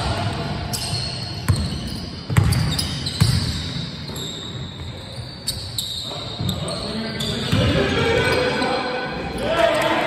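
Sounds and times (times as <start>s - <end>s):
basketball bouncing on wooden court: 0.3s - 5.3s.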